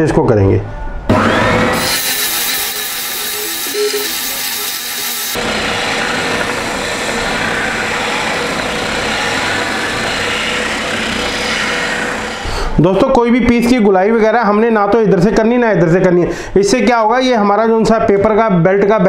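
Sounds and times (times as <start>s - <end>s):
sander motor whine: 1.1s - 12.5s
sanding belt rasping on wood: 1.8s - 11.9s.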